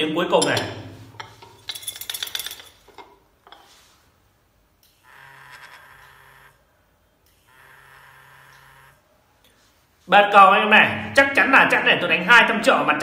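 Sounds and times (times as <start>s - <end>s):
vibrating detector buzzing: 4.9s - 6.6s, 7.3s - 9.0s.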